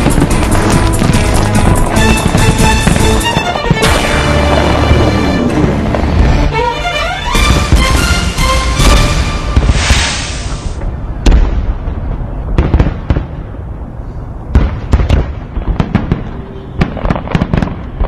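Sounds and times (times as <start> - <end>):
fireworks bangs and crackles: 0.0 - 6.6, 7.2 - 18.0
low rumble: 3.8 - 12.6.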